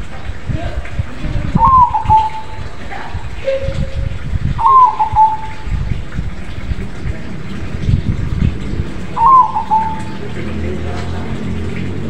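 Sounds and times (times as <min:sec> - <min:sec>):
low rumbling noise: 0:00.0 - 0:12.0
dove cooing: 0:01.5 - 0:03.9, 0:04.6 - 0:05.9, 0:09.0 - 0:10.5.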